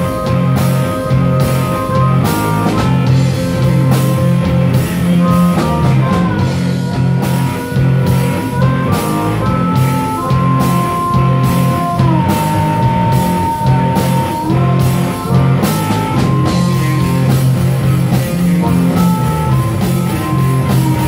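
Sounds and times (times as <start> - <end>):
drum kit: 0.0 - 21.0
electric guitar: 0.0 - 21.0
harmonica wailing: 0.0 - 21.0.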